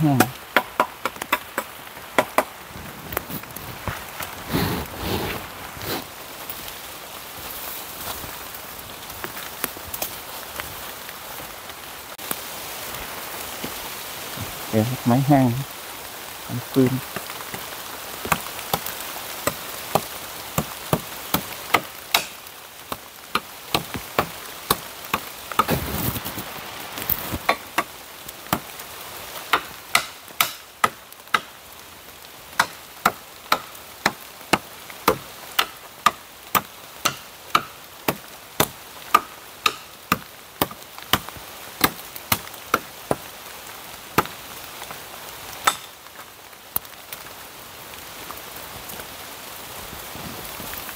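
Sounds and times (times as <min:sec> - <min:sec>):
rain falling: 0:00.0 - 0:50.9
wood being chopped: 0:00.1 - 0:02.5, 0:17.1 - 0:26.4, 0:27.0 - 0:27.9, 0:29.5 - 0:31.5, 0:32.6 - 0:43.3, 0:45.6 - 0:45.9.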